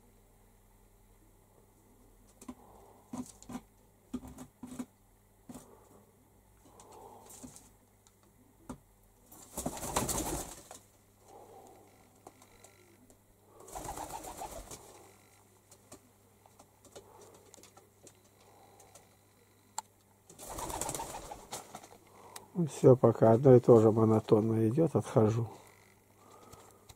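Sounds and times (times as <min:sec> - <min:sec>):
pigeons cooing: 0:11.3 - 0:15.2, 0:20.4 - 0:22.3.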